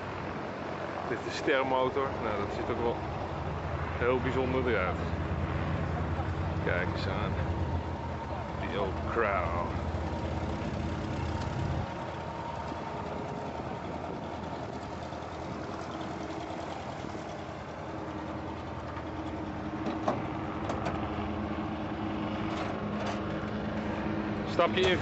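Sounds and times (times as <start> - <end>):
engine idling: 4.7 - 22.0.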